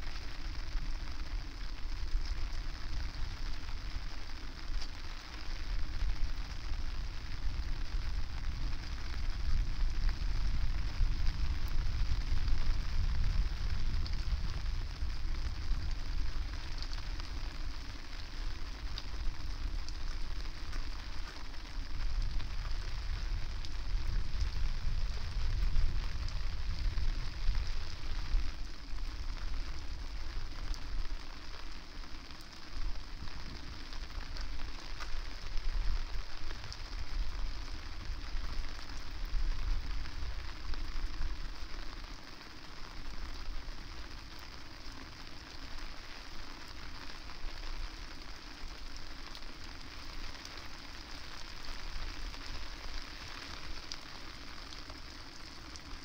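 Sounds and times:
rain falling: 0.0s - 56.0s
wind buffeting microphone: 7.1s - 16.5s, 21.9s - 28.3s.

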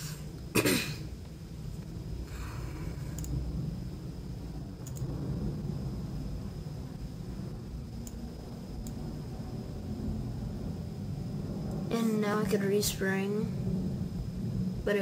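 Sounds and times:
microphone hum and hiss: 0.0s - 15.0s
computer mouse clicks: 3.1s - 3.4s, 4.8s - 5.1s, 8.8s - 9.0s.

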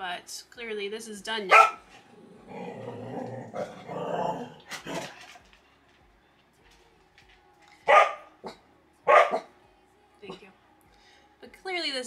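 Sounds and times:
dog barking loudly: 1.5s - 2.0s, 7.9s - 8.3s, 9.1s - 9.5s.

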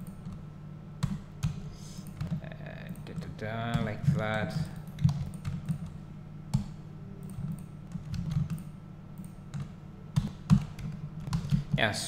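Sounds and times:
steady low hum: 0.0s - 12.0s
keyboard and mouse clicks: 4.7s - 5.9s.

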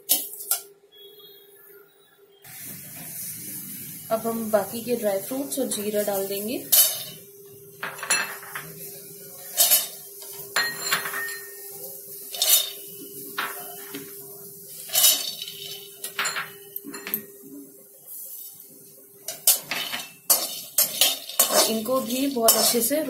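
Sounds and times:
hard pieces clattering in steel pan: 6.7s - 7.2s, 9.5s - 11.5s, 12.3s - 14.0s, 14.8s - 17.2s, 19.3s - 23.0s.

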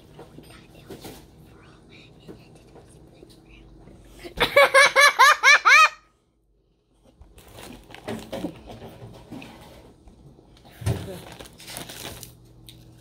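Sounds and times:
quiet indistinct sounds: 0.0s - 4.8s
girl laughing: 4.2s - 6.1s.

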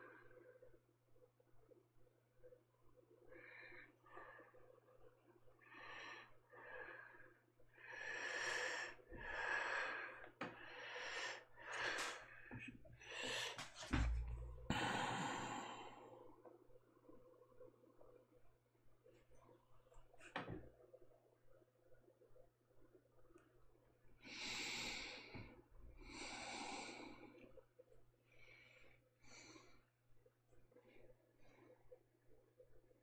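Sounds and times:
low thump on desk: 13.8s - 14.7s.

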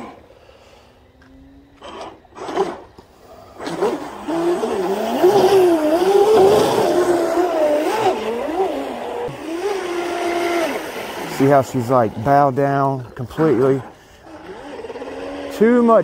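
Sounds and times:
model boat motor whine: 1.0s - 16.0s
water hissing off hull: 3.2s - 13.0s.

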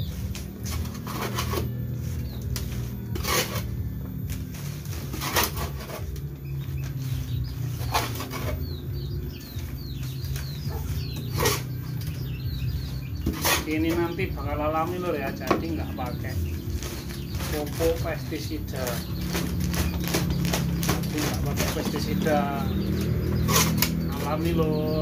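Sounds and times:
small birds chirping: 0.0s - 25.0s
steady low hum: 0.0s - 25.0s
shovel scraping wheelbarrow: 0.6s - 2.2s, 2.8s - 3.8s, 4.4s - 6.2s, 7.0s - 8.8s, 13.2s - 14.2s, 23.4s - 24.4s.

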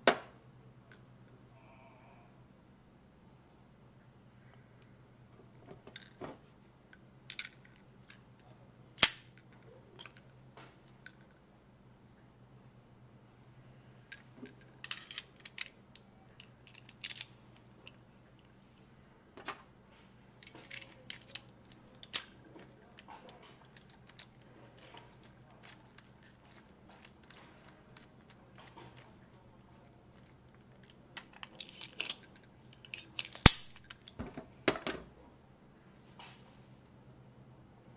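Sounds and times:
faint low hum: 0.0s - 37.9s
metal parts clicking and clinking: 7.3s - 8.2s, 9.0s - 10.4s, 14.1s - 18.5s, 20.4s - 34.2s.

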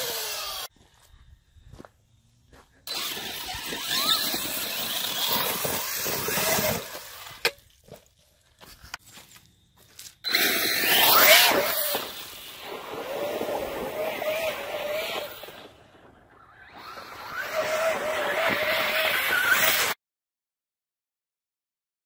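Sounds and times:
rc car motor whining: 0.0s - 0.7s, 2.9s - 7.5s, 10.2s - 20.0s
tyres churning loose dirt: 2.8s - 8.2s, 10.3s - 19.9s.

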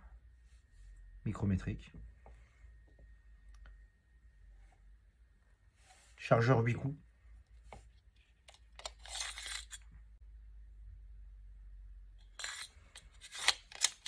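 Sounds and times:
metallic clicks and scrapes: 8.4s - 9.9s, 12.2s - 14.0s.

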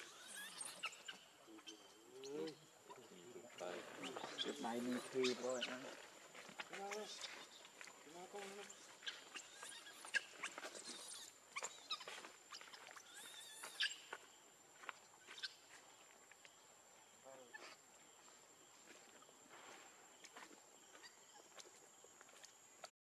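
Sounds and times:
monkeys squeaking and chirping: 0.0s - 6.1s, 6.8s - 14.1s, 15.2s - 15.7s, 21.0s - 21.5s.

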